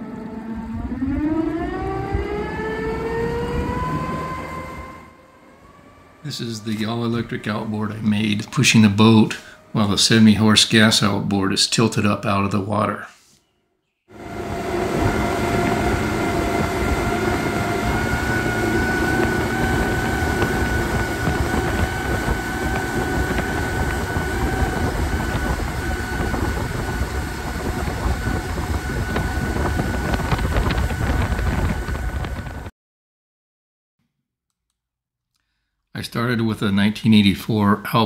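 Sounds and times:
electric motor high whine: 0.0 - 6.2, 14.1 - 32.7
wind buffeting microphone: 14.2 - 32.7.

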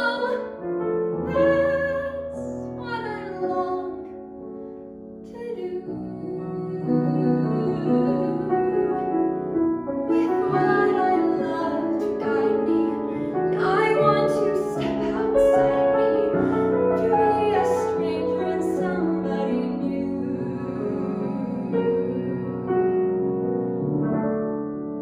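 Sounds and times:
woman singing: 0.0 - 0.6, 1.2 - 4.1, 5.3 - 9.3, 10.1 - 22.4
grand piano accompaniment: 0.0 - 25.0.

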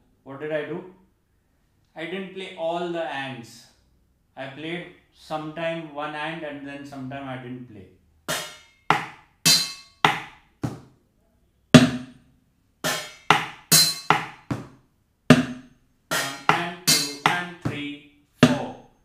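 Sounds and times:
strikes on metal plate: 8.3 - 10.8, 11.8 - 12.2, 12.8 - 14.7, 15.3 - 17.8, 18.4 - 18.8.

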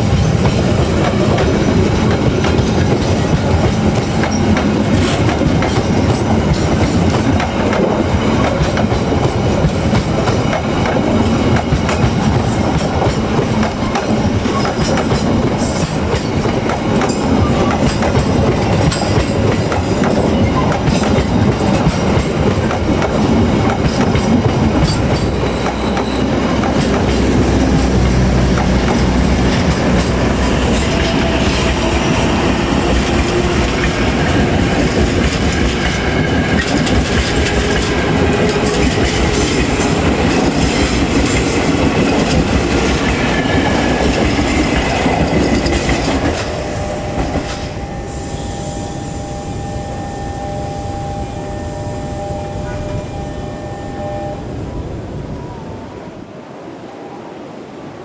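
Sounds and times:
train wheels rumbling: 0.0 - 55.4
steady tone: 44.7 - 55.4.

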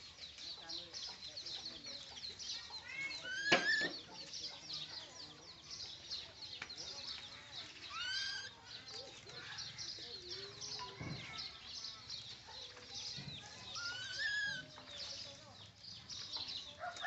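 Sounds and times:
baby monkeys chirping: 0.4 - 17.0
monkey squeals: 7.9 - 8.5, 13.8 - 14.7.

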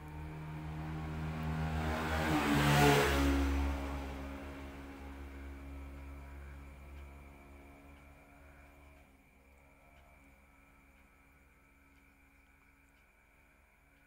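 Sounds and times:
vehicle passing by: 0.0 - 9.0
steady low hum: 3.4 - 14.0.

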